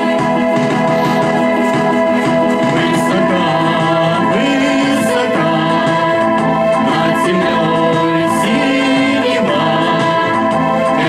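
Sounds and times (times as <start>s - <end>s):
instrumental music over speaker: 0.0s - 11.0s
young voices singing: 0.0s - 11.0s
man singing through microphone: 2.6s - 11.0s.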